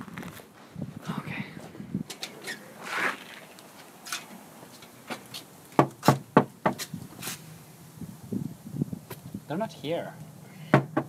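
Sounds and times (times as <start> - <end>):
knocking on a door: 10.8 - 11.0.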